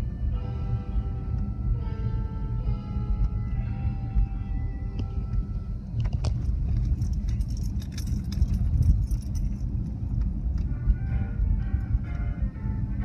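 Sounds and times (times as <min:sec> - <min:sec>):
car road rumble: 0:00.0 - 0:13.0
light metallic jangling: 0:05.9 - 0:10.6.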